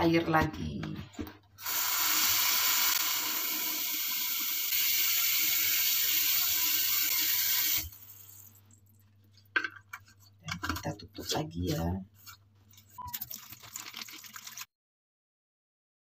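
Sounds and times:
tap water running into jar: 13.0 - 14.7.

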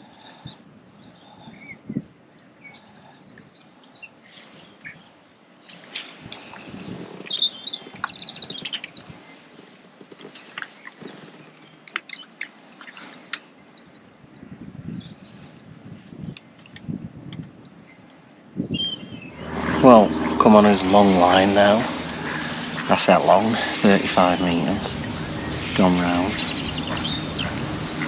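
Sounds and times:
small birds singing and chirping: 0.1 - 9.9, 14.8 - 16.8, 17.8 - 28.0.

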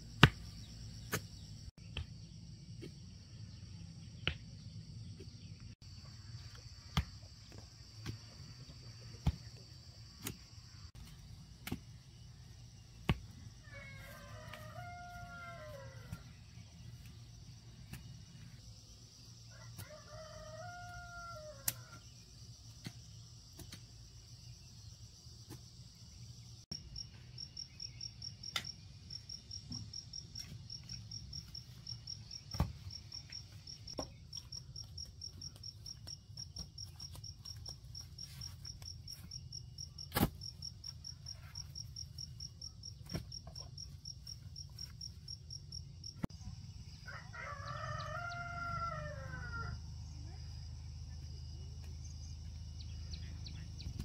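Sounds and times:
cricket chirping: 0.0 - 54.0
rooster crowing: 13.6 - 16.3, 19.5 - 22.1, 47.0 - 49.9.

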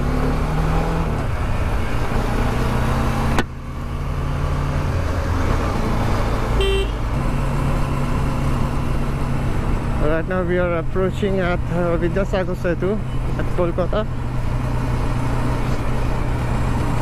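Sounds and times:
wind and road noise: 0.0 - 17.0
horn toot: 6.6 - 7.1.

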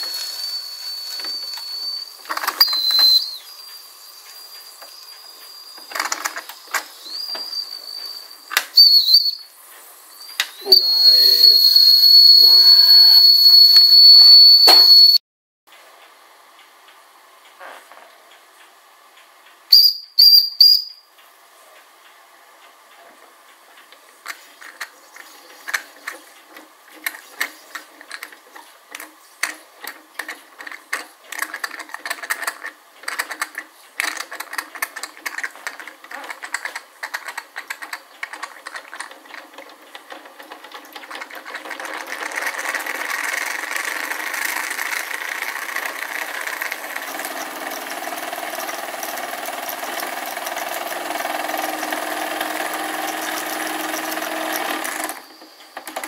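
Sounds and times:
toy steam engine running: 0.0 - 9.2, 10.3 - 13.9, 24.2 - 56.0
tin bucket elevator rattling: 34.1 - 55.1.

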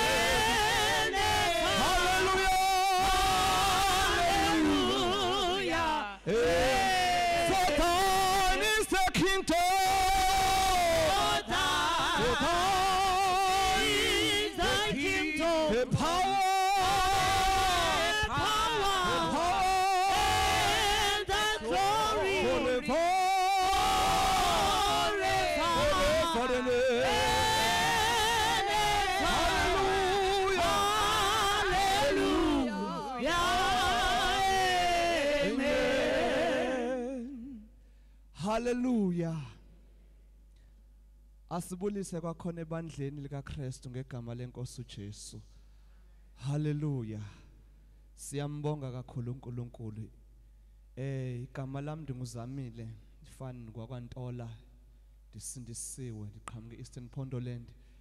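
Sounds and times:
gospel singing over a pa: 0.0 - 37.7
singer breathing: 37.8 - 38.3, 45.4 - 46.4, 57.7 - 58.0.

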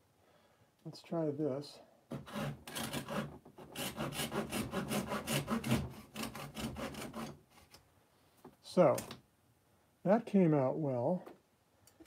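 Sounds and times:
knife sawing: 2.1 - 7.4.

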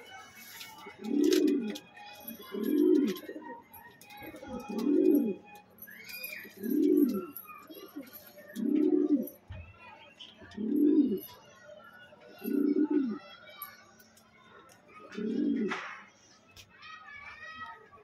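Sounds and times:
pigeon cooing: 0.8 - 9.4, 10.5 - 11.3, 12.4 - 13.2, 15.0 - 15.8.

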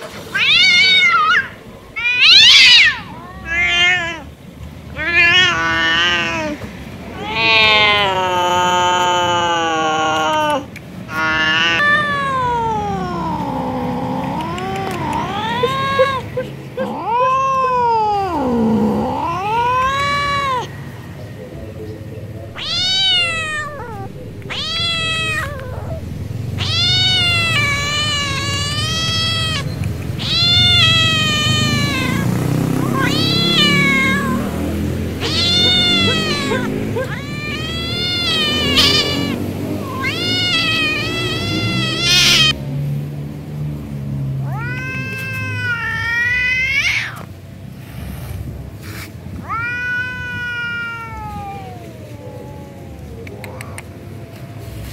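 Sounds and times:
tomcat yowling: 0.3 - 4.4, 5.0 - 20.7, 22.5 - 42.6, 44.4 - 47.3, 49.4 - 53.9
cat low rough moan: 5.0 - 20.8, 22.5 - 42.6, 49.4 - 53.8.

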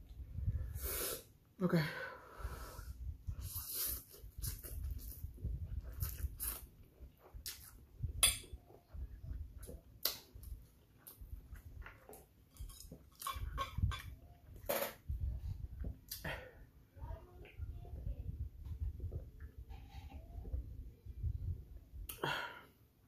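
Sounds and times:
person slurping noodles: 3.4 - 4.8.

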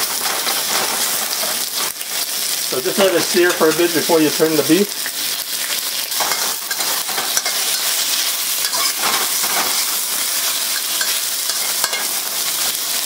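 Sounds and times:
spatula scraping a pan: 0.0 - 2.0, 6.2 - 12.8
meat sizzling in a wok: 0.0 - 13.0.

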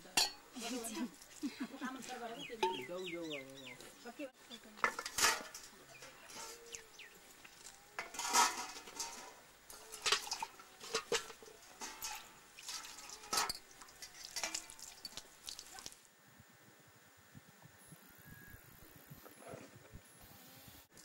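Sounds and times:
metal dishes clanking: 0.2 - 0.9, 4.8 - 15.2
water splashing: 9.7 - 16.1.

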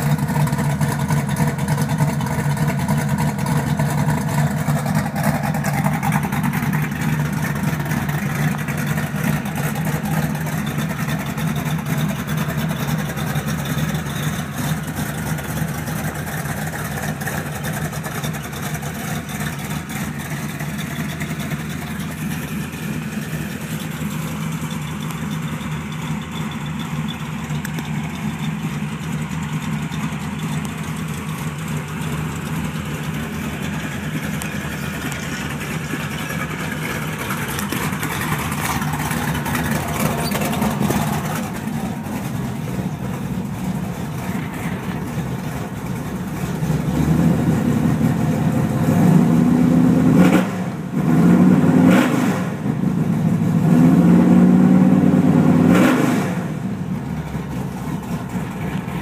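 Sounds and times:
car engine idling and revving: 0.0 - 59.0.

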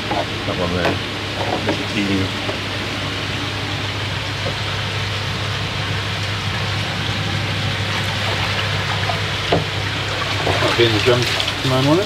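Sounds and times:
pump hum: 0.0 - 12.0
water rushing and bubbling: 6.7 - 12.0.

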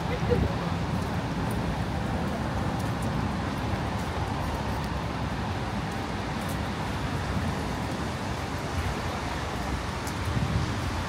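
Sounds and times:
cars passing rumble: 0.0 - 11.0.

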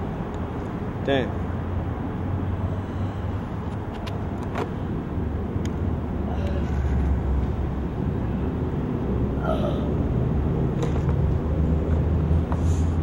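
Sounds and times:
low rumble of city ambience: 0.0 - 13.0.

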